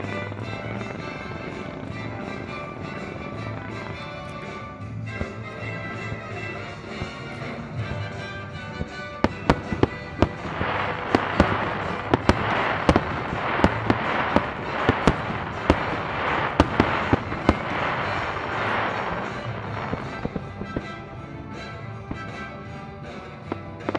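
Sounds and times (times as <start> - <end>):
faint music: 0.0 - 23.9
firework bangs: 0.0 - 23.9
fireworks crackling: 0.0 - 23.9.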